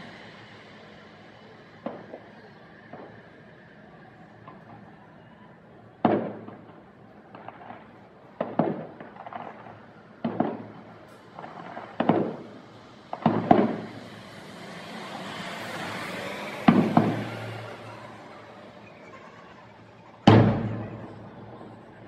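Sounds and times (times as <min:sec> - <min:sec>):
hiss: 0:00.0 - 0:03.8, 0:11.1 - 0:18.8
firework shells booming: 0:06.0 - 0:22.0
rumbling echo: 0:16.3 - 0:22.0.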